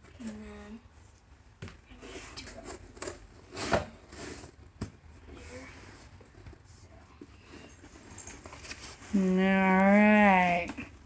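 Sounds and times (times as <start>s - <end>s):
cardboard rustling and scraping: 1.9s - 6.5s, 7.3s - 10.6s.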